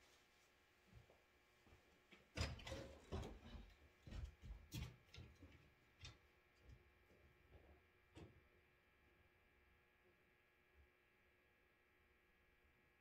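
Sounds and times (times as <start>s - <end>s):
handling knocks and scraping: 2.3s - 5.7s.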